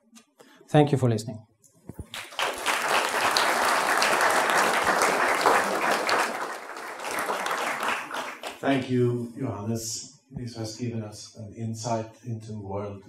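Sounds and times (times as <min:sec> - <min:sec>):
audience applauding: 0:02.0 - 0:08.9.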